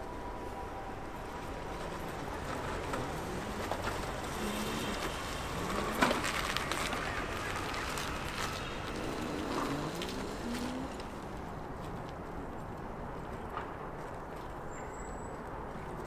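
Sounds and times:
street ambience: 0:00.0 - 0:16.0
scooter passing: 0:01.3 - 0:12.6.

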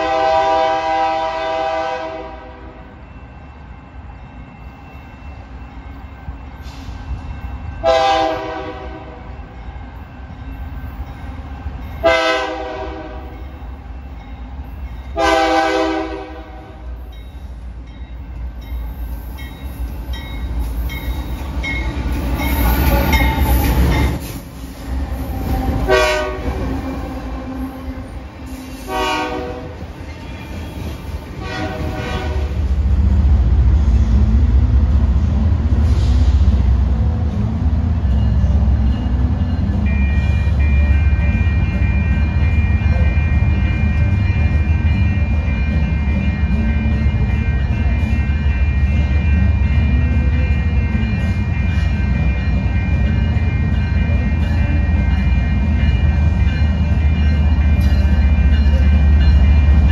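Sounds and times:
train horn blasts: 0:00.0 - 0:02.8, 0:07.8 - 0:09.3, 0:12.0 - 0:13.4, 0:15.2 - 0:16.9, 0:25.5 - 0:29.9, 0:31.4 - 0:32.7
train rumble: 0:00.0 - 0:59.9.

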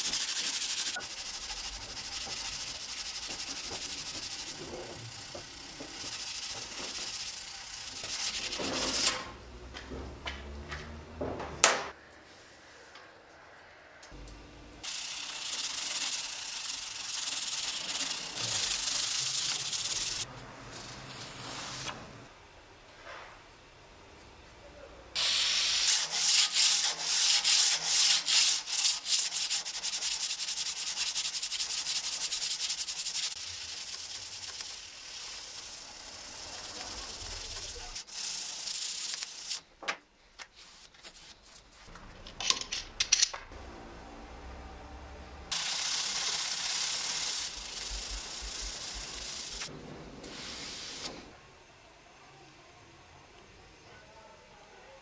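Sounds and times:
hand sanding metal blade: 0:00.0 - 0:09.2, 0:14.8 - 0:20.3, 0:25.7 - 0:39.6, 0:45.5 - 0:49.7
aerosol spray hissing: 0:14.8 - 0:20.3, 0:25.2 - 0:27.0, 0:45.5 - 0:49.7, 0:50.3 - 0:51.2.

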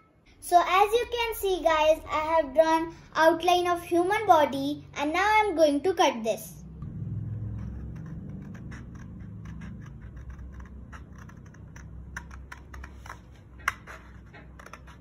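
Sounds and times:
scissors snipping paper: 0:07.6 - 0:15.0.

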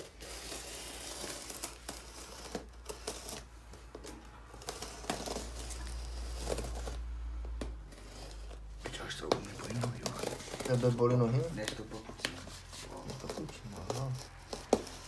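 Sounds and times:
knife slicing packing tape: 0:00.0 - 0:03.5, 0:04.5 - 0:07.0
tape and cardboard crinkling: 0:00.0 - 0:15.0.

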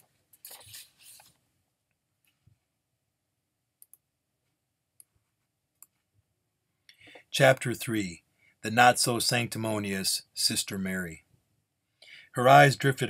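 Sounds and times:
computer mouse clicks: 0:03.8 - 0:04.0.

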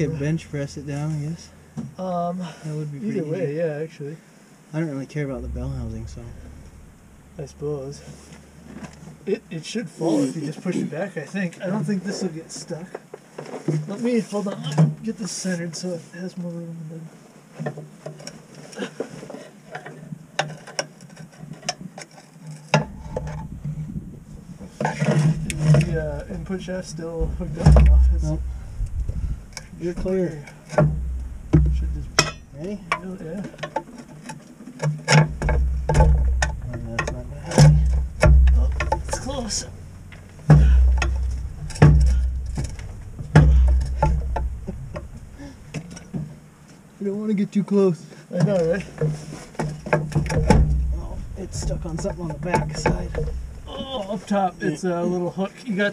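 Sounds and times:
heavy metal thuds: 0:00.0 - 0:02.0, 0:05.3 - 0:09.7, 0:22.8 - 0:34.3, 0:35.0 - 0:46.6, 0:48.8 - 0:53.8
loud metallic knock: 0:05.4 - 0:09.2, 0:30.8 - 0:33.0, 0:35.1 - 0:46.3, 0:49.6 - 0:53.7
metallic clicks and clanks: 0:24.8 - 0:46.3, 0:48.9 - 0:53.7.

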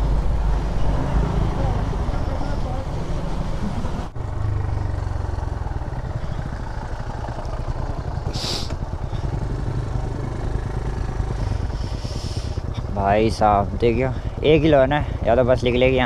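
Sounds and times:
motorcycle engine running: 0:00.0 - 0:16.0
short hiss: 0:08.3 - 0:08.8.

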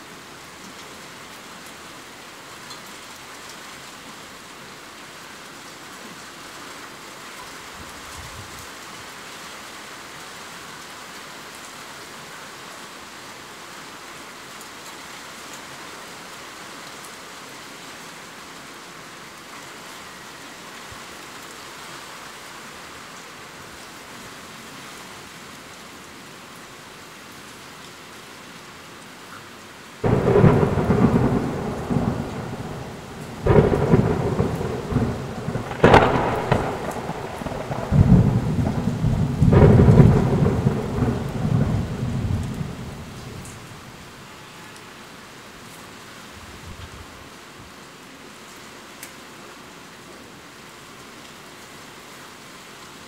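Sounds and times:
heavy rain: 0:00.0 - 0:53.0
thunder cracks and rumbles: 0:30.0 - 0:43.7.

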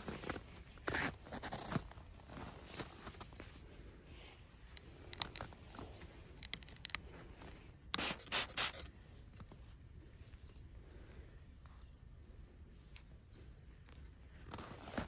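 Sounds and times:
spray bottle squirts hissing: 0:08.0 - 0:08.9.

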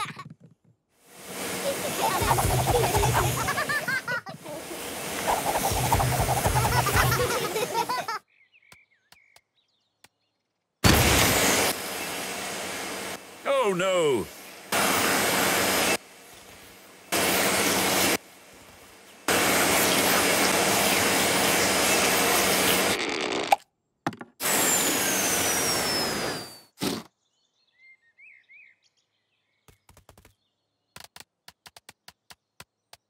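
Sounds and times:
air blasting from nozzle: 0:01.2 - 0:04.0, 0:04.7 - 0:07.6, 0:10.8 - 0:13.3, 0:14.1 - 0:18.2, 0:19.3 - 0:23.0, 0:24.4 - 0:26.5.

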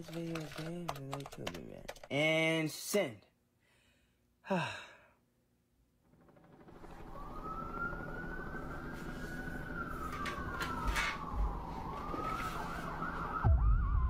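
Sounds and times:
police siren wailing: 0:06.6 - 0:14.0.

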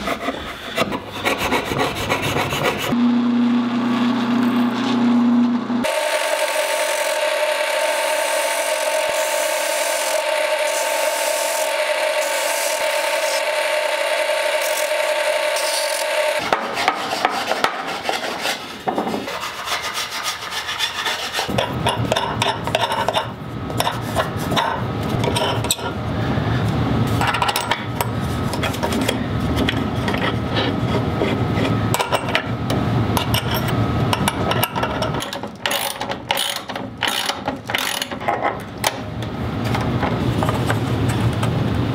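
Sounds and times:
sanding drum humming: 0:00.0 - 0:21.6
wood and metal parts clicking: 0:34.5 - 0:38.6.

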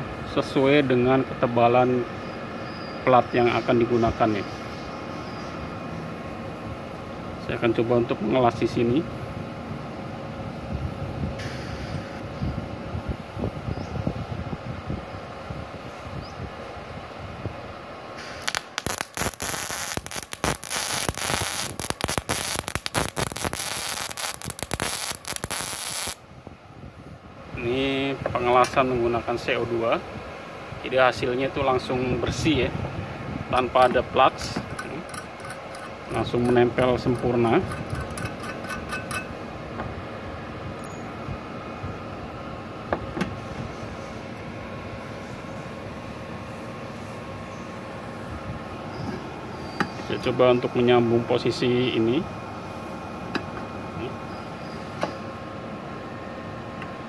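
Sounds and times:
steady background noise: 0:00.0 - 0:57.0
welding arc crackling and popping: 0:18.3 - 0:26.2.

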